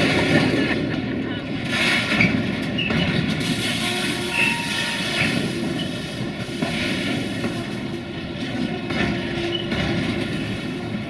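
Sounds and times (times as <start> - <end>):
train rolling rumble: 0.0 - 11.0
train wheels clacking over rail joints: 0.0 - 11.0
wheel flanges squealing: 2.1 - 6.5, 8.5 - 10.5.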